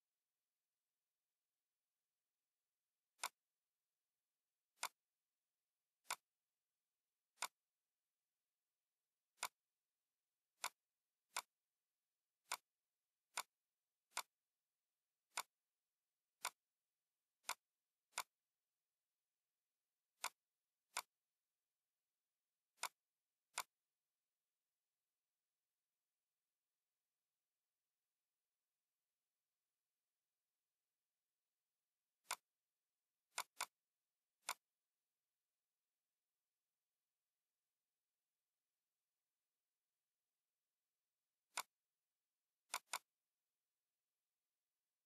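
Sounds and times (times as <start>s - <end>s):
computer mouse clicks: 3.1s - 3.4s, 4.8s - 5.0s, 6.0s - 6.4s, 7.3s - 7.6s, 9.3s - 9.6s, 10.6s - 11.6s, 12.4s - 12.7s, 13.3s - 14.4s, 15.3s - 15.6s, 16.4s - 16.7s, 17.4s - 18.4s, 20.2s - 21.2s, 22.7s - 23.8s, 32.2s - 32.6s, 33.3s - 33.8s, 34.4s - 34.8s, 41.5s - 41.9s, 42.6s - 43.2s.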